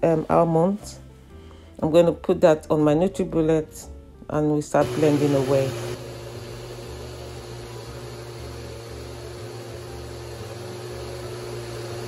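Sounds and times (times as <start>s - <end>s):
blender running: 4.8s - 12.0s.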